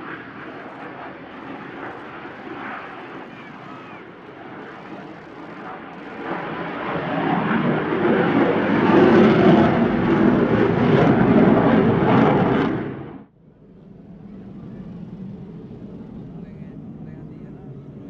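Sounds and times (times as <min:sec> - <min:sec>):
loud rushing jet noise: 0:00.0 - 0:13.3.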